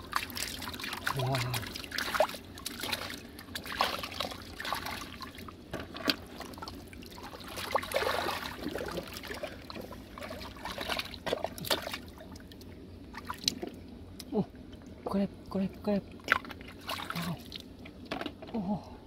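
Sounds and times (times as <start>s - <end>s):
hands sloshing through mud: 0.0s - 5.4s, 6.0s - 12.1s, 16.3s - 17.6s
small splashes: 0.0s - 13.8s, 16.2s - 17.6s
water trickling: 0.0s - 13.8s.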